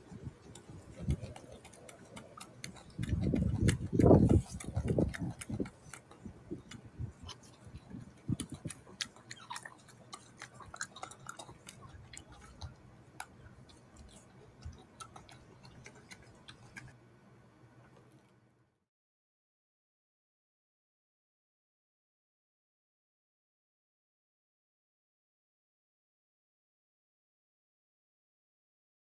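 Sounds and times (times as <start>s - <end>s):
monkey chewing with mouth clicks: 0.0s - 17.0s.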